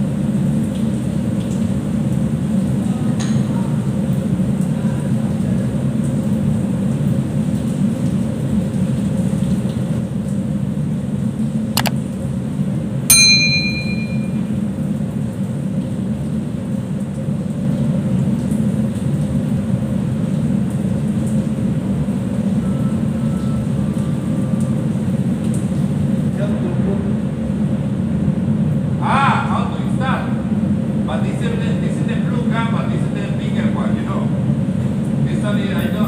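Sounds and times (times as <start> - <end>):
machinery and ventilation hum: 0.0 - 36.0
sharp click: 11.8 - 12.0
bell-like ding: 13.1 - 14.5.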